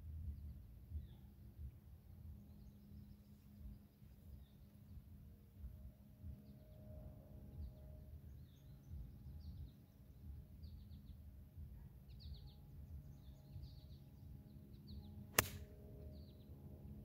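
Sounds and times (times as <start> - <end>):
golf club striking ball: 15.3 - 15.7.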